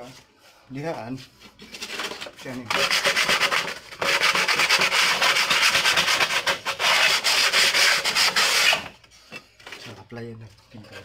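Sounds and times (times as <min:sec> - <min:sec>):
sandpaper rubbing on plywood: 0:01.2 - 0:08.9.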